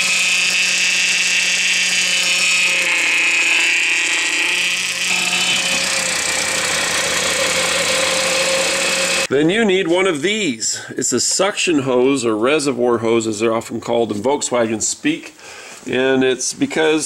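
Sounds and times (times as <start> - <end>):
power steering pump whining: 0.0 - 9.3.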